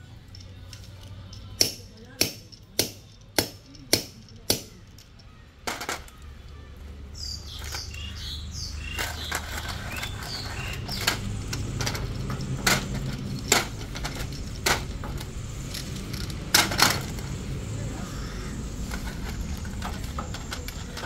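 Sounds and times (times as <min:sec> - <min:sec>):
birds chirping: 0:00.0 - 0:21.0
sharp metallic knocks: 0:01.6 - 0:04.8.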